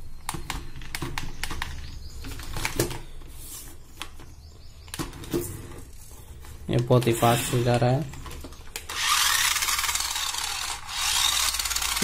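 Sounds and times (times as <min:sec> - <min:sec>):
plastic clicks and clatter: 0:00.2 - 0:03.2, 0:08.0 - 0:09.0
small electric motor whir: 0:08.9 - 0:12.0.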